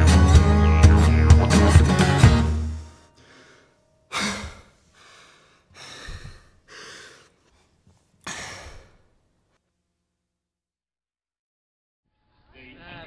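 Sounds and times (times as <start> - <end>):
person breathing hard: 2.9 - 9.2.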